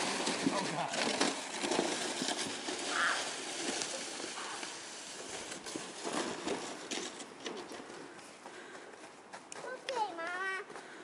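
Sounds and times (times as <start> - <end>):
snow crunching and scraping: 0.0 - 8.7.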